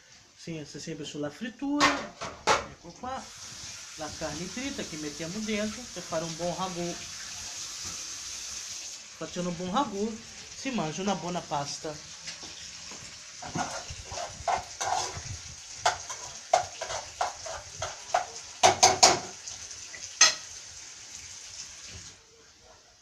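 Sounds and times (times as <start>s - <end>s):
meat sizzling in a pan: 3.0s - 22.2s
utensil scraping a pan: 13.4s - 19.4s.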